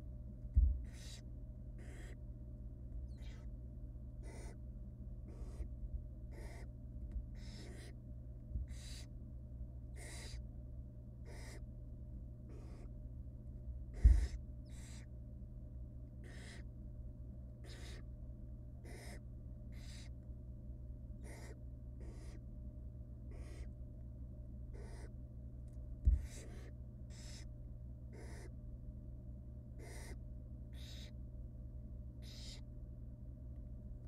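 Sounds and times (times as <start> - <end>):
low camera hum: 0.0 - 34.0
owl nestlings hissing calls: 0.8 - 2.2, 3.1 - 3.5, 4.2 - 4.6, 5.2 - 5.7, 6.3 - 6.7, 7.4 - 8.0, 8.6 - 9.1, 10.0 - 10.4, 11.2 - 11.7, 12.5 - 12.9, 13.9 - 15.1, 16.2 - 16.7, 17.6 - 18.0, 18.8 - 20.2, 21.2 - 22.4, 23.3 - 23.7, 24.7 - 25.2, 26.2 - 27.5, 28.1 - 28.5, 29.8 - 31.2, 32.2 - 32.6.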